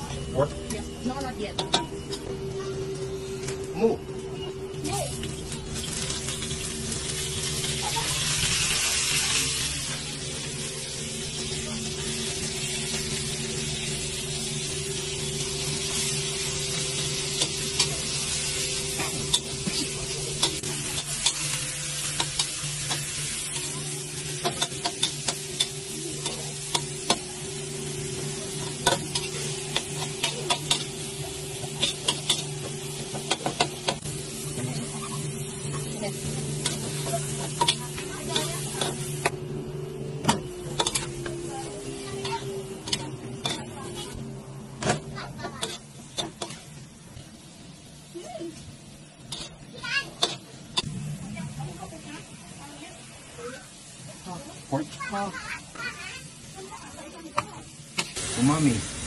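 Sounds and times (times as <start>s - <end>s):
meat sizzling in a wok: 4.8s - 59.0s
metal spatula scraping wok: 40.8s - 44.2s, 49.2s - 50.9s.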